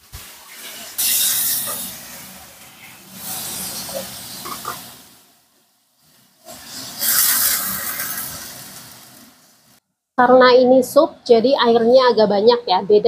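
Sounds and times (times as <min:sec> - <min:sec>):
vegetables sizzling in oil: 0:00.0 - 0:05.2, 0:06.4 - 0:09.8
water hissing in hot pan: 0:00.0 - 0:05.3, 0:06.4 - 0:09.8.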